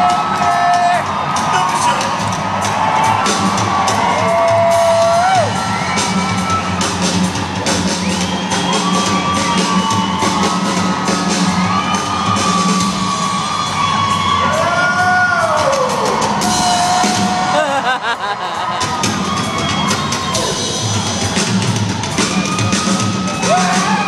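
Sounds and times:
drum strikes: 0.0s - 13.3s
crowd whooping and cheering: 0.0s - 24.0s
live rock band in arena: 0.0s - 24.0s.

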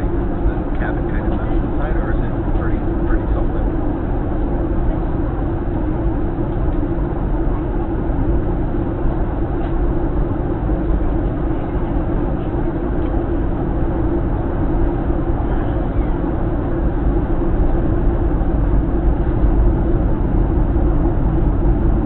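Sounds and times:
airplane cabin drone: 0.0s - 22.0s.

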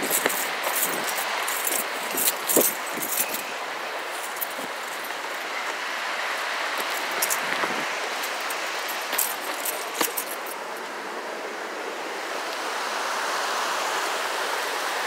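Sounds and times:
footsteps crunching on gravel: 0.0s - 10.6s
creek water rushing: 0.0s - 15.0s.

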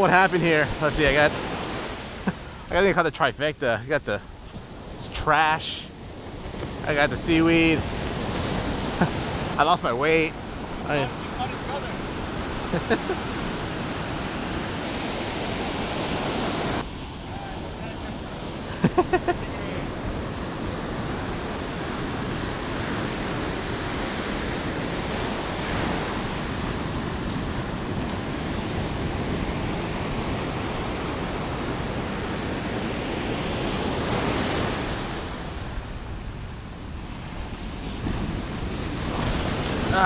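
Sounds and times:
ocean surf washing onto beach: 0.0s - 40.0s
wind on the microphone: 19.4s - 40.0s.

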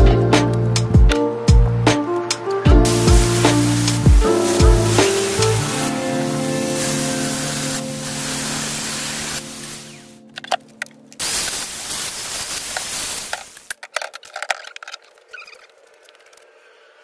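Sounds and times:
loud rushing noise: 2.9s - 8.8s
metal parts clicking on workbench: 10.3s - 11.2s, 12.7s - 16.4s.

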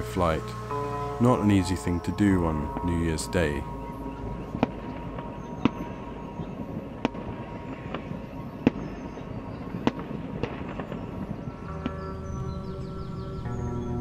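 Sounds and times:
steady background noise: 0.0s - 14.0s
fireworks bangs: 1.2s - 12.0s.

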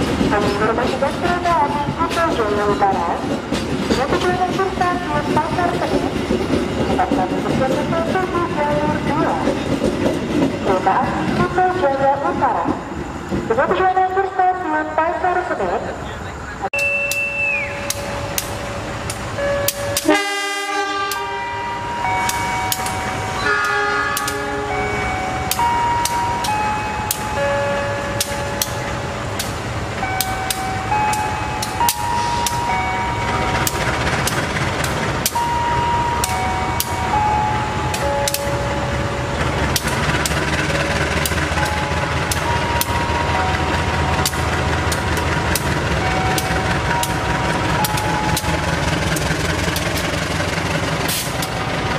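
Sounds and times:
locomotive engine rumble: 0.0s - 51.9s
slow tune of single notes: 16.8s - 33.8s, 35.2s - 39.4s, 41.6s - 49.9s
train horn: 20.0s - 21.7s, 23.4s - 24.8s
sharp clicks: 33.6s - 35.4s, 44.1s - 50.2s.

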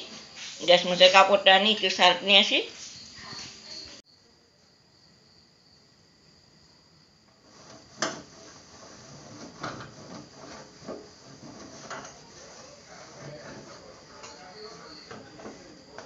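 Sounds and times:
cloth wiping metal stovetop: 0.0s - 3.7s, 7.4s - 16.0s.

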